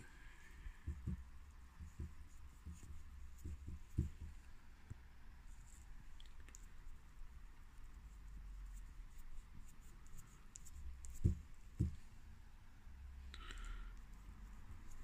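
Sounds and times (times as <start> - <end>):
paintbrush scratchy brushing: 0.0 - 4.3.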